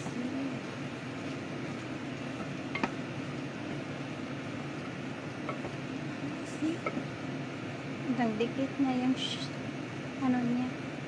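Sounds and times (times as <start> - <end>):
wooden spatula stirring in pot: 0.1 - 7.2
spatula knocking against pot: 2.4 - 3.0.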